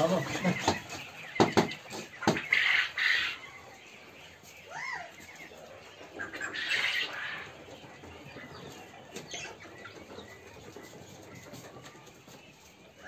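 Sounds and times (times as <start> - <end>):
shuffling: 0.0 - 2.2
faint bird sounds: 0.0 - 13.0.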